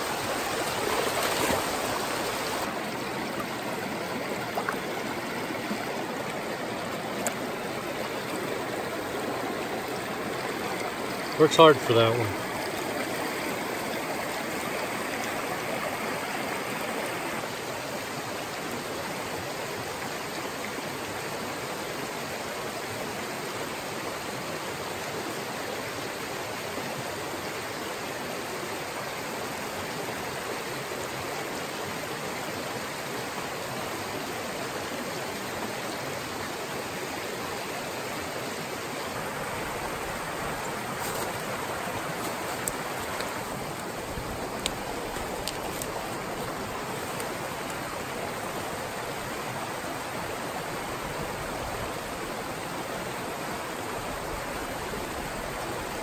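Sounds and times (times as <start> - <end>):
stream rushing over rocks: 0.0 - 56.0
faint clicks: 42.2 - 43.9, 44.5 - 47.8.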